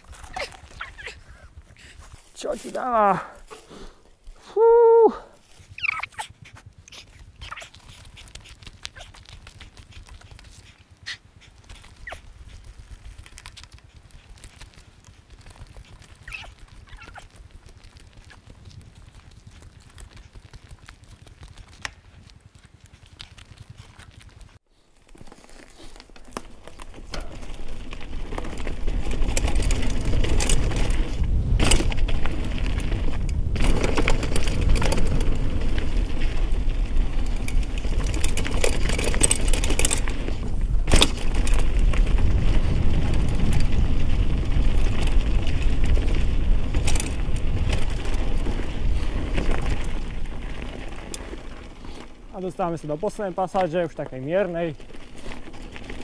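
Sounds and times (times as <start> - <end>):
tyres rolling and wind rumble: 24.4 - 56.0
bike knocks and rattles: 25.1 - 53.2.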